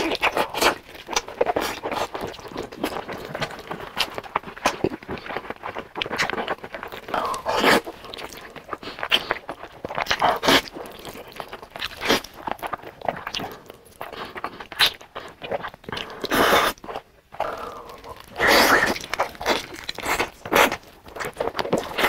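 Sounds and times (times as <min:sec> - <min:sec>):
wet chewing and smacking: 0:00.0 - 0:22.0
noodle slurping: 0:17.4 - 0:20.8.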